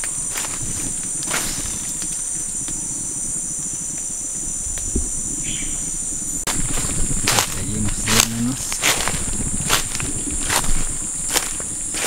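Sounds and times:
footsteps crunching on trail: 0.0s - 2.7s, 6.5s - 12.0s
insects droning: 0.0s - 12.0s.

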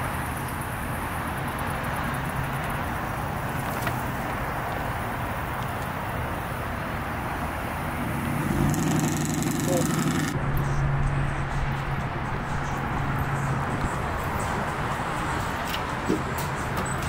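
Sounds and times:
constant outdoor rumble: 0.0s - 17.0s.

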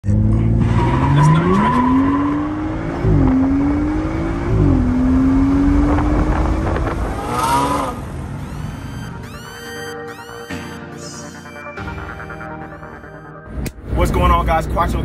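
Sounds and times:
car engine accelerating hard: 0.0s - 9.0s.

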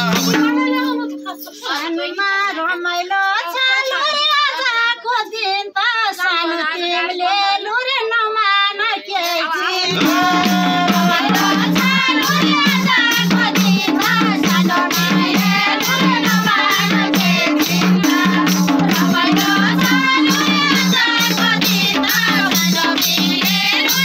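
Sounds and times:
percussion beat: 0.0s - 1.8s, 9.2s - 24.0s
women singing a folk song: 0.0s - 24.0s.

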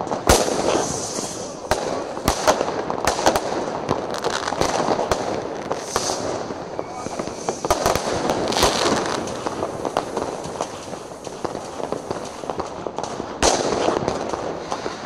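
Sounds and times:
firecrackers crackling: 0.0s - 15.0s
fireworks bangs: 0.0s - 15.0s.

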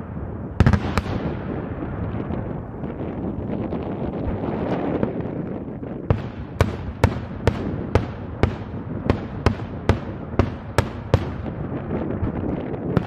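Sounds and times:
firework bangs: 0.2s - 3.1s, 6.1s - 13.0s.

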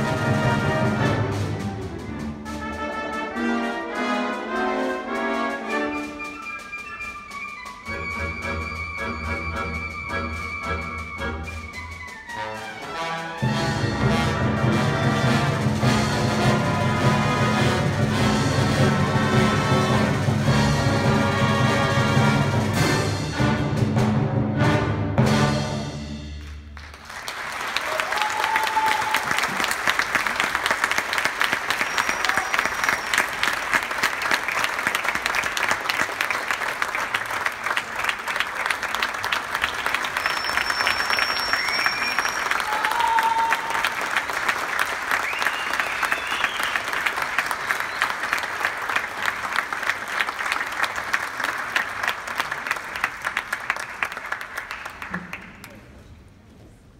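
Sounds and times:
whistles and calls from audience: 5.8s - 12.4s, 31.4s - 33.7s, 39.6s - 44.0s, 45.1s - 48.7s
audience applause: 26.4s - 55.9s.

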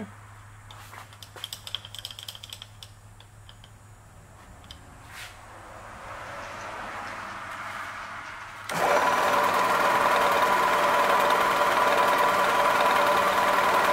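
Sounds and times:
rotary table metallic clicks: 1.1s - 3.8s.

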